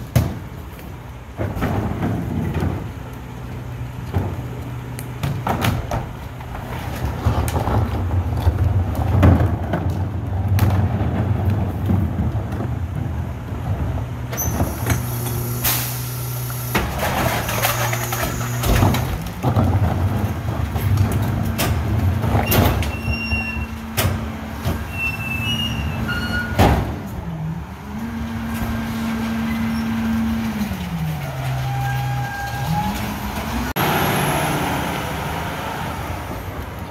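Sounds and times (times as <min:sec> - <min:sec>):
cart knocking and clattering: 0:00.0 - 0:15.2, 0:16.8 - 0:27.2
diesel truck engine running: 0:10.2 - 0:36.9
hydraulic packer: 0:10.6 - 0:35.1
short squeals: 0:17.0 - 0:18.9, 0:22.4 - 0:24.0, 0:24.8 - 0:26.7, 0:31.3 - 0:33.2.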